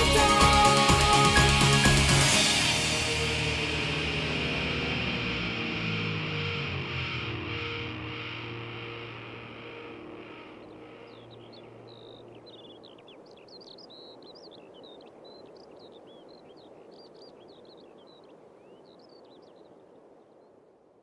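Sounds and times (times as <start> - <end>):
music: 0.0 - 12.4
birds chirping: 0.0 - 20.5
steady outdoor hiss: 0.0 - 21.0.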